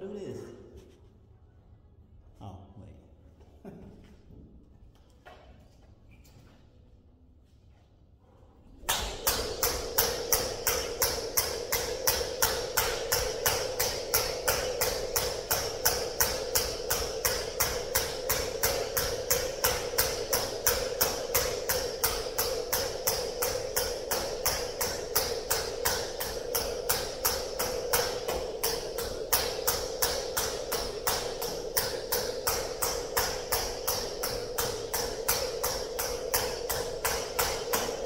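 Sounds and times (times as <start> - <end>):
jump rope slapping the floor: 8.8 - 38.0.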